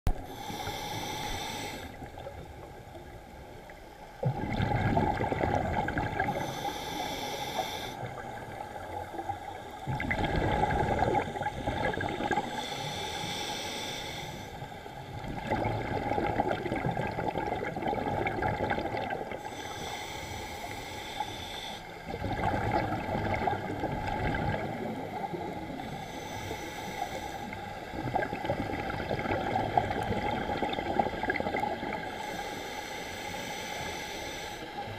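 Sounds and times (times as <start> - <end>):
regulator hiss on inhale: 0.2 - 2.3, 6.2 - 9.6, 11.6 - 15.0, 19.4 - 22.1, 25.3 - 27.9, 32.1 - 34.9
bubbles gurgling on exhale: 4.2 - 6.5, 9.2 - 12.5, 15.2 - 19.4, 22.1 - 25.6, 27.9 - 32.0.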